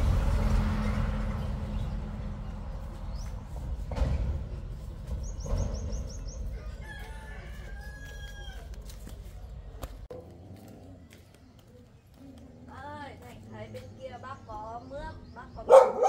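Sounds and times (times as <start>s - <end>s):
low rumble of traffic: 0.0s - 16.0s
rooster crowing: 6.5s - 8.9s.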